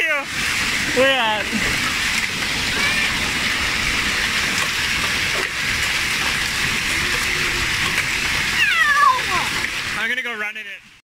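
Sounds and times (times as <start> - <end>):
hail and heavy rain pelting: 0.0 - 11.0.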